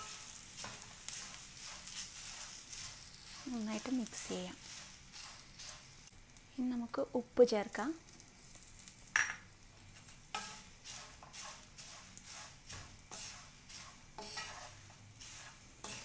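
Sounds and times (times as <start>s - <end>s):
spatula scraping rice flakes in pan: 0.0s - 6.3s, 9.8s - 16.0s.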